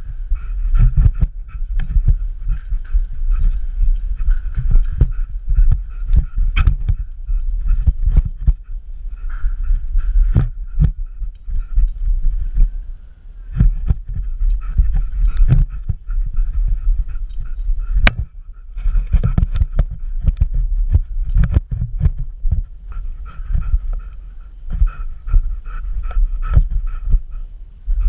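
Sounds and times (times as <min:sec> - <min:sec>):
dog breathing: 0:00.0 - 0:28.0
heavy thumping and rubbing: 0:13.6 - 0:24.0.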